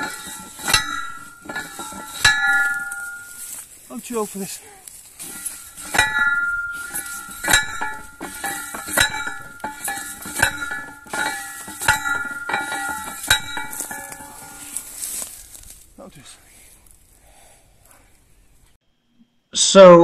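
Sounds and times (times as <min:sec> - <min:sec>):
ringing metallic clangs: 0:00.0 - 0:03.6, 0:05.2 - 0:15.5.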